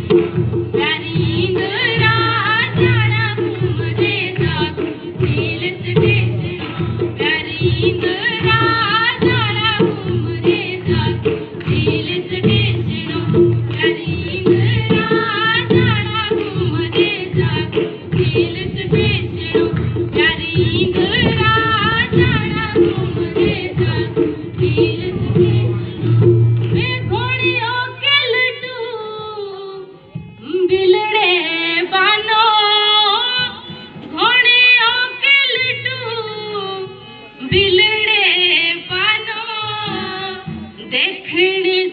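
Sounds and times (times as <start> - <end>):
quick dense drum beat: 0.0 - 27.8.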